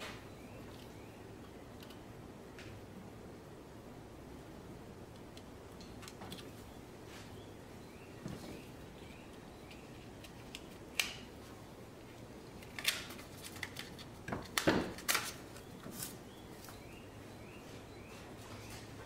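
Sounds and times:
hands clicking and scraping hose: 5.1s - 6.6s, 9.3s - 11.3s, 12.1s - 16.8s.

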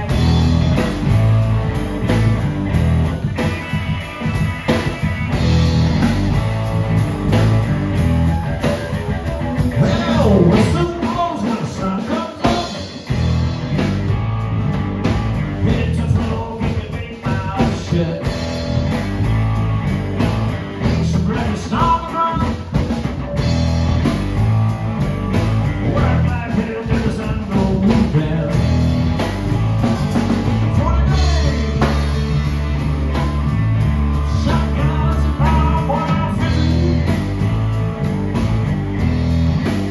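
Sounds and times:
lead guitar bending notes: 0.0s - 11.2s
blues-rock band playing: 0.0s - 39.9s.

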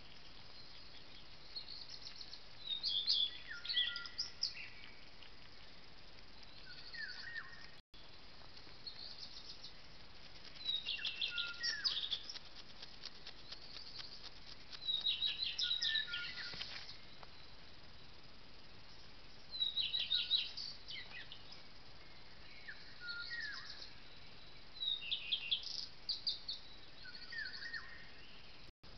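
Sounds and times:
microphone hiss: 0.0s - 28.9s
songbird whistles and trills: 0.6s - 5.0s, 10.6s - 12.4s, 13.4s - 17.1s, 19.5s - 24.1s, 24.8s - 28.5s.

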